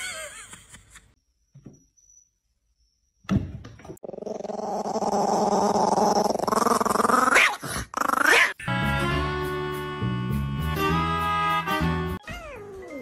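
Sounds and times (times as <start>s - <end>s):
dog growling: 4.0s - 8.6s
music: 8.6s - 12.4s.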